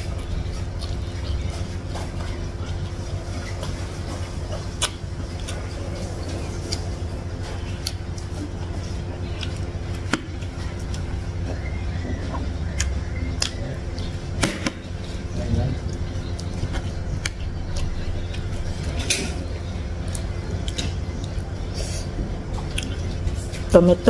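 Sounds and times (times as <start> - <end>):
wet chewing: 0.0 - 23.8
steady low rumble: 0.0 - 24.0.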